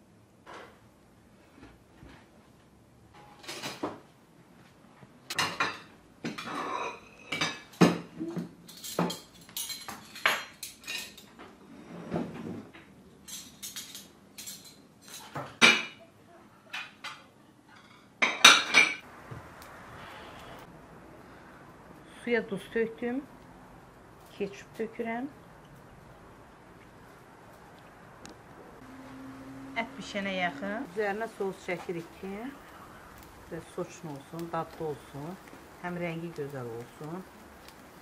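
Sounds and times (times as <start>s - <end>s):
plates and spoons clattering: 5.3s - 8.1s, 8.7s - 11.4s, 17.8s - 19.0s.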